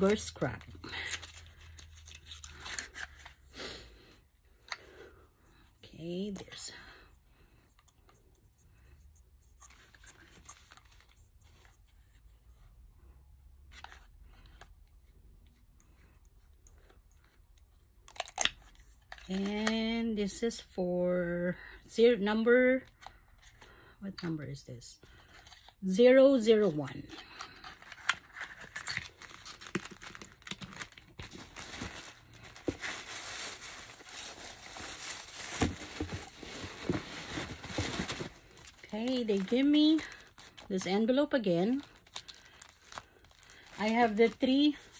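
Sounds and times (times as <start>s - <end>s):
packaging rustling and tapping: 27.8s - 40.6s.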